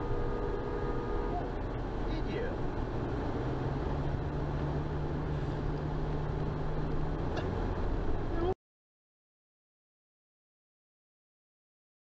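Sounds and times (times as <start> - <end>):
car engine and road noise: 0.0 - 8.6.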